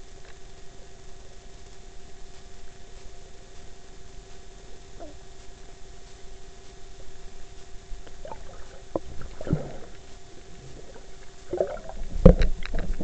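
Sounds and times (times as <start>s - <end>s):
faint steady hum: 0.0s - 13.0s
water sloshing: 8.2s - 13.0s.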